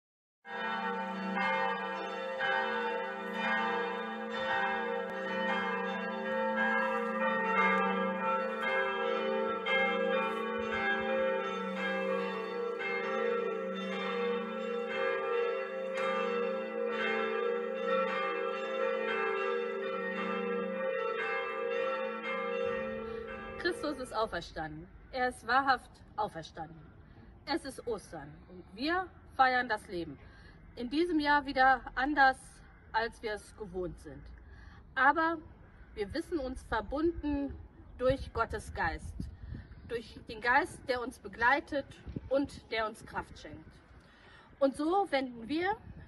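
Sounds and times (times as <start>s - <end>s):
church bells ringing: 0.5s - 24.7s.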